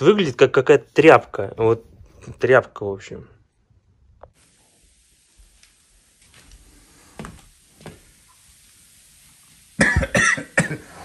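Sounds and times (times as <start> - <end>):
cleaner foam fizzing hiss: 4.3 - 11.0.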